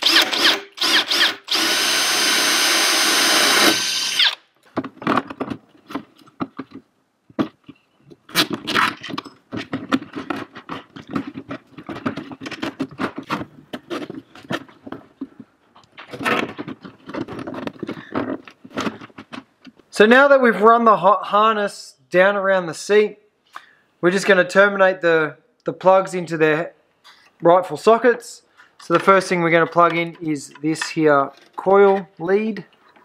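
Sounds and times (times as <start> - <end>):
cordless drill boring: 0.0 - 4.5.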